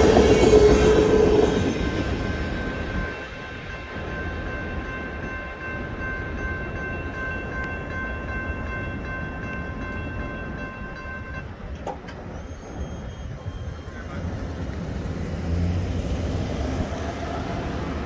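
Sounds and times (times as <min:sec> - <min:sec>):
freight train rumbling past: 0:00.0 - 0:18.0
high crossing bell ringing: 0:00.4 - 0:11.7.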